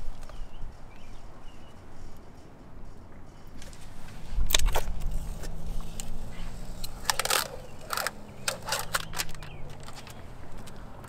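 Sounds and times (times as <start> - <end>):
low engine hum: 0.0 - 11.0.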